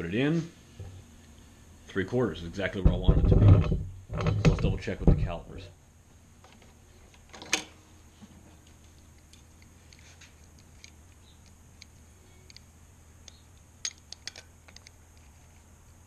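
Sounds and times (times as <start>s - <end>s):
faint low hum: 0.0s - 16.0s
knock on wooden board: 2.8s - 5.3s.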